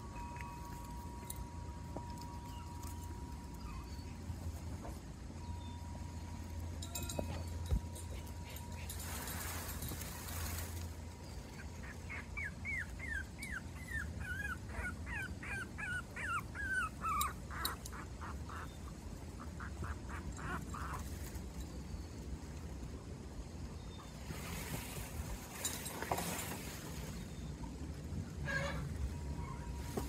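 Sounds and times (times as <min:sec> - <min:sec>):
puppy yipping: 0:02.3 - 0:04.6, 0:11.6 - 0:18.7, 0:19.6 - 0:21.0
puppy whimpering: 0:02.4 - 0:04.4, 0:11.6 - 0:18.8.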